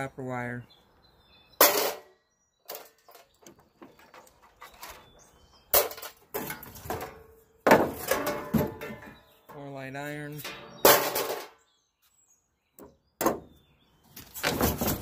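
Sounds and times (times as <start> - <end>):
metal clanks and scrapes: 1.6 - 2.1, 5.7 - 9.3, 10.3 - 11.6.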